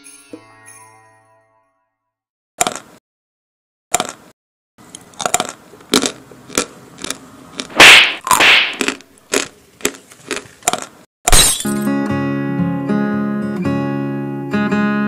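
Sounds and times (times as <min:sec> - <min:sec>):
sharp cracks and crunches: 0:02.6 - 0:03.0, 0:03.9 - 0:04.3, 0:05.0 - 0:11.6.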